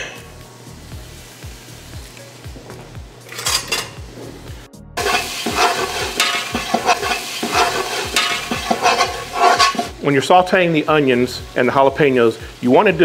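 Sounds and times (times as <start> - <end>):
spoon scraping metal pot: 5.0 - 9.9
onion sizzling in butter: 5.0 - 13.0.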